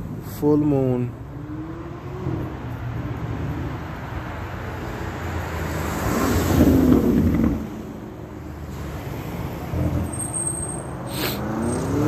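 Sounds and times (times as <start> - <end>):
rumble of passing cars: 0.0 - 12.0
vehicle passing close: 1.3 - 10.1.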